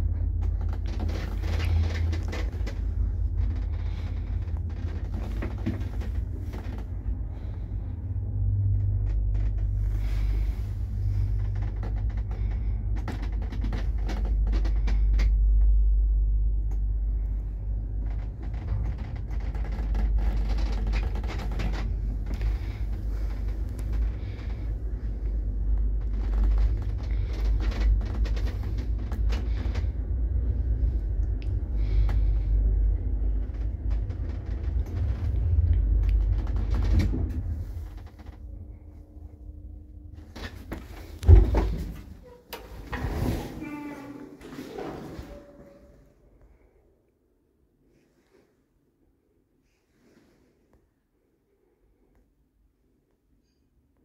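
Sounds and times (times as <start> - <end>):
lift car clicks and rattles: 0.0 - 7.0, 18.0 - 38.4
lift rumbling in shaft: 0.0 - 46.8.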